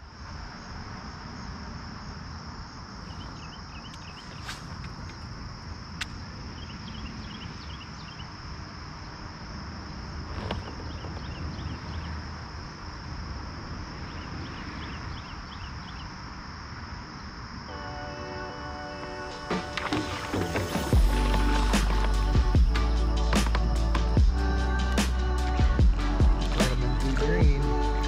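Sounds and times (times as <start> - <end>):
insects droning: 0.0 - 28.0
short insect chirps: 2.9 - 16.4.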